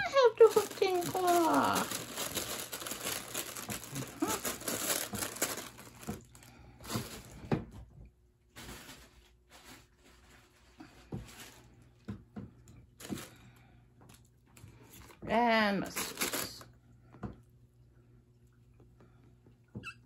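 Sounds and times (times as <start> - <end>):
crinkling fabric tunnel rustling: 0.0 - 7.4, 8.5 - 11.8.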